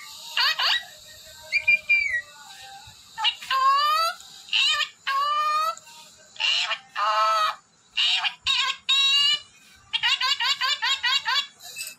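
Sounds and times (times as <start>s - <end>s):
parakeet squawks: 0.3s - 2.2s, 3.2s - 5.8s, 6.4s - 11.8s.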